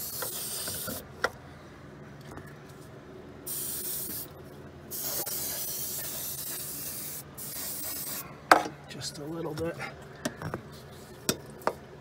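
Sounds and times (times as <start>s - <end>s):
aerosol spray can hissing: 3.5s - 4.3s, 4.9s - 8.2s.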